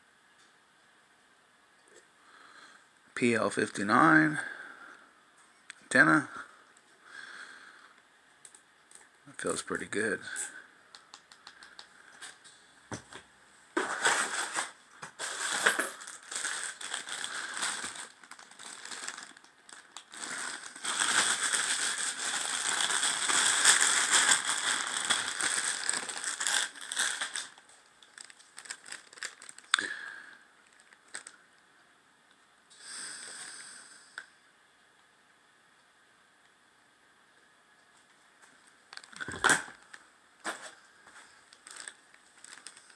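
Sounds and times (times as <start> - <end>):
plastic bag crinkling: 13.8 - 30.0, 30.6 - 31.4, 38.9 - 42.9.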